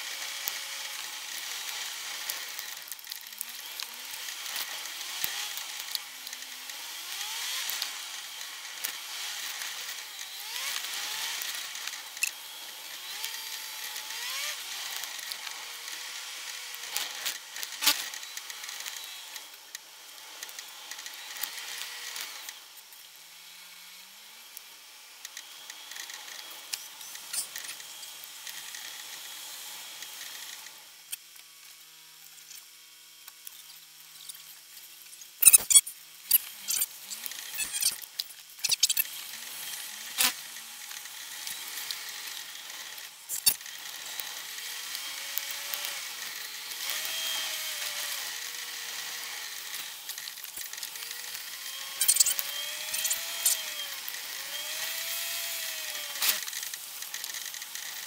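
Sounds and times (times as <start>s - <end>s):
fast-forwarded engine whine: 0.0s - 32.5s, 33.6s - 58.0s
sharp clicks: 35.4s - 44.4s.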